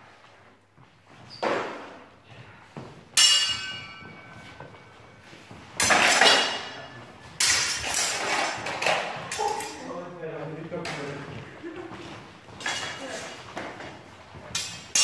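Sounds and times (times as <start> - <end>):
metallic sword strike ringing: 3.2 - 4.1.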